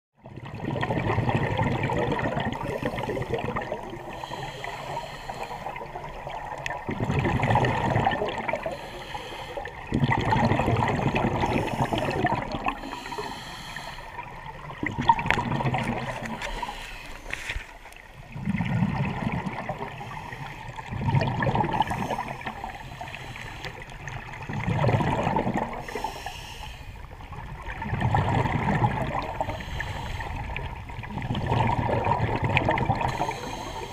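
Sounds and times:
exhaled bubbles rushing underwater: 0.2 - 17.3, 17.9 - 33.9
diving regulator hissing: 25.8 - 27.0, 33.1 - 33.9.

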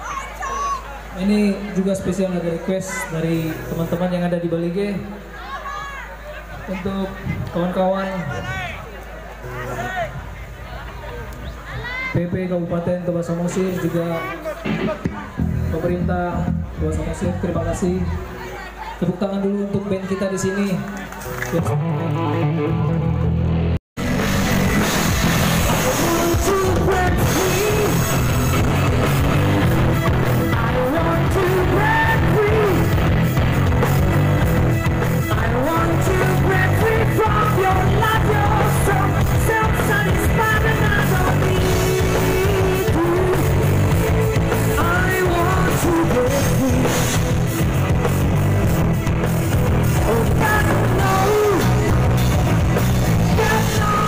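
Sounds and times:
live rock band playing: 13.7 - 17.4, 21.2 - 54.0
person singing: 25.6 - 28.8, 30.2 - 33.3, 35.2 - 47.3, 49.9 - 52.3, 53.1 - 54.0.

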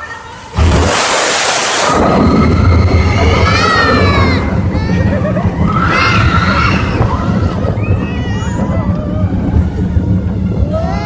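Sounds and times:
roller coaster cars rumbling: 0.0 - 11.0
riders screaming: 1.8 - 9.7.

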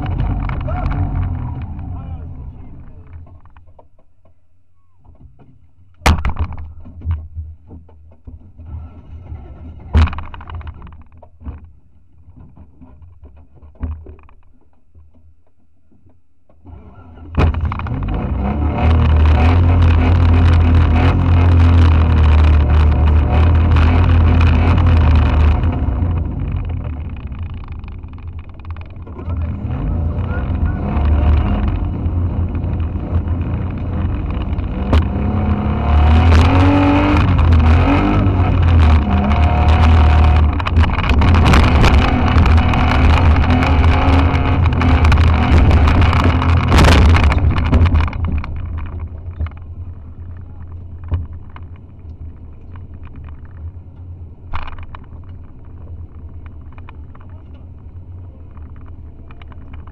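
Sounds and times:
car engine revving: 0.0 - 4.0, 16.6 - 59.9
car engine idling: 0.0 - 13.6, 14.2 - 59.9
knocks and rattles: 0.0 - 59.9.

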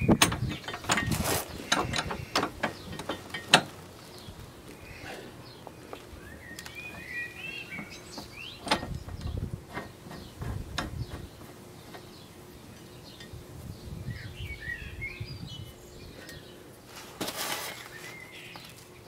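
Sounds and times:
metal parts clicking and knocking: 0.0 - 3.7.

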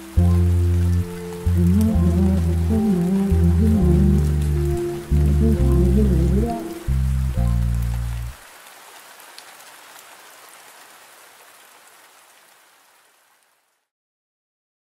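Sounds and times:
song: 0.0 - 8.3
rain pattering: 0.0 - 13.8.

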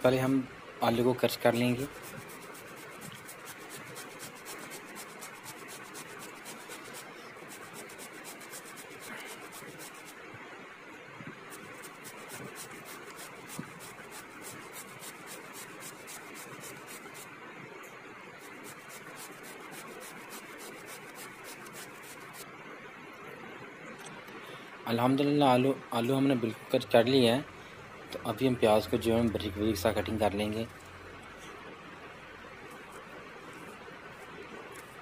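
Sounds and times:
potato grating on metal grater: 1.6 - 10.2, 11.5 - 17.3, 18.4 - 22.4.

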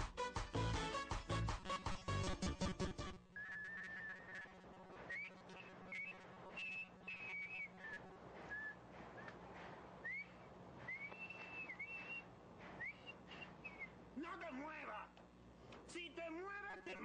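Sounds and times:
man whistling faintly: 3.4 - 14.0.

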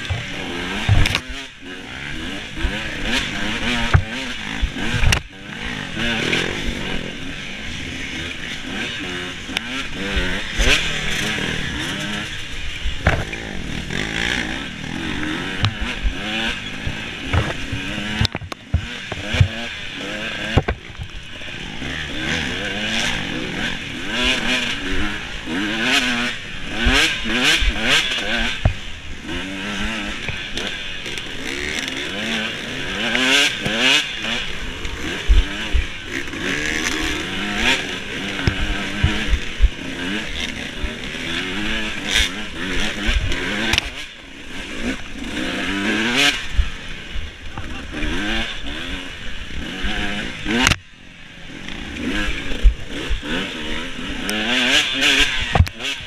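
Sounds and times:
dirt bike engine revving: 0.0 - 56.0
knocks and clatter: 16.8 - 19.6.

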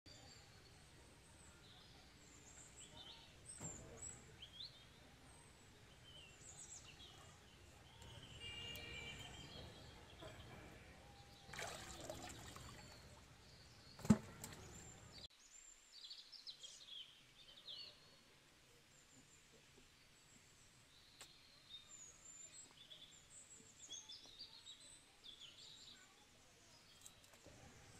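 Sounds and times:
birds chirping: 0.1 - 18.3
muddy water splashing: 11.5 - 13.2, 14.0 - 15.1.

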